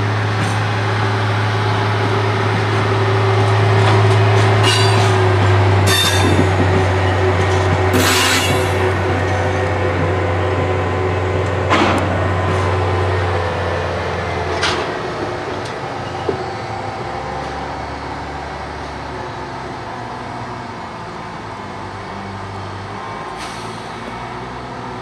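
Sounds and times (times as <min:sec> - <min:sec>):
diesel locomotive engine drone: 0:00.0 - 0:25.0
brief sharp train sounds: 0:07.9 - 0:09.0.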